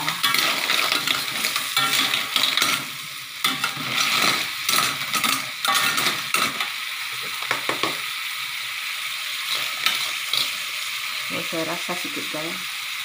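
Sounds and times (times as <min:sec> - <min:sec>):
ladle and shells scraping pan: 0:00.0 - 0:06.8, 0:09.4 - 0:10.8
cockles sizzling in a wok: 0:00.0 - 0:13.0.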